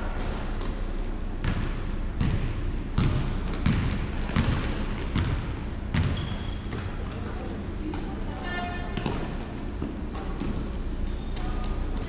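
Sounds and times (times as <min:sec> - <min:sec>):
sneaker squeaks: 0:00.0 - 0:00.9, 0:02.2 - 0:12.0
basketball bouncing on hardwood: 0:01.4 - 0:07.0.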